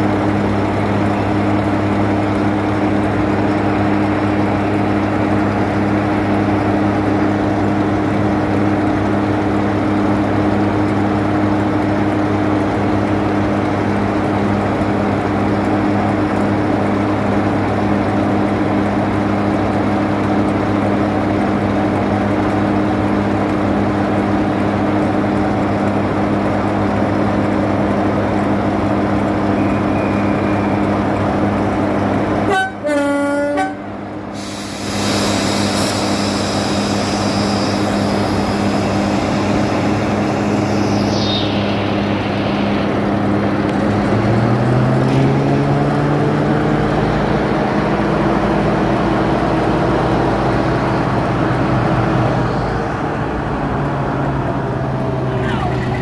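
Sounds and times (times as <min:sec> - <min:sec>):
diesel locomotive engine idling: 0:00.0 - 0:56.0.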